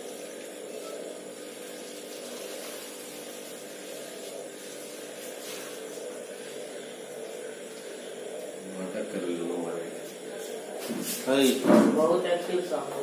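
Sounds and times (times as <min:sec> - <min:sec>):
steady background hum: 0:00.0 - 0:13.0
hiss: 0:01.5 - 0:08.1, 0:10.0 - 0:11.7.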